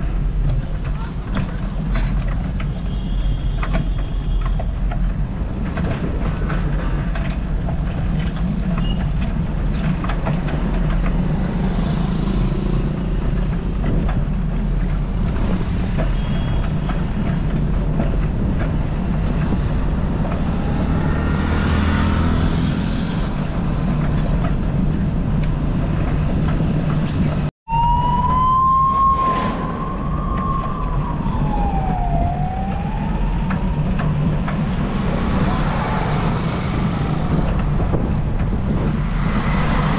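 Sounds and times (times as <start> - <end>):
road rumble: 0.0 - 39.9
wind buffeting: 4.8 - 39.9
wailing tone rising and falling: 27.7 - 34.5.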